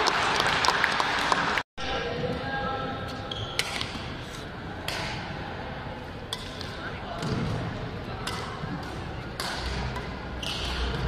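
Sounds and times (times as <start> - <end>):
racket hitting shuttlecock: 8.2 - 11.0.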